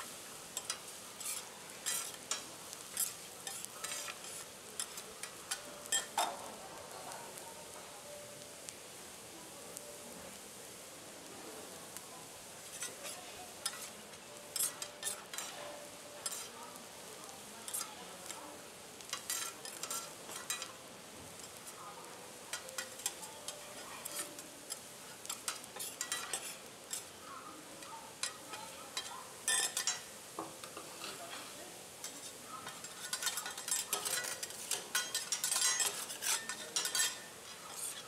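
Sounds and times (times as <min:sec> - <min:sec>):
rice sizzling on griddle: 0:00.0 - 0:38.0
spatulas striking and scraping griddle: 0:00.2 - 0:06.4, 0:12.7 - 0:16.6, 0:17.6 - 0:18.4, 0:19.0 - 0:21.8, 0:22.5 - 0:27.2, 0:27.8 - 0:38.0.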